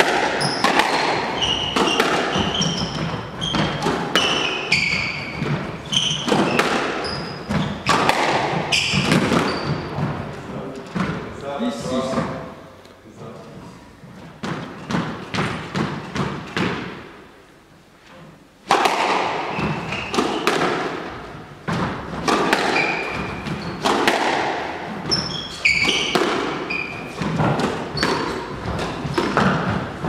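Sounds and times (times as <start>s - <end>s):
ball thudding against walls: 0.0s - 11.3s, 18.6s - 30.0s
squash ball hitting rackets: 0.0s - 11.3s, 14.2s - 17.2s, 18.6s - 30.0s
shoes squeaking on wooden floor: 0.3s - 12.4s, 13.4s - 16.6s, 19.4s - 30.0s.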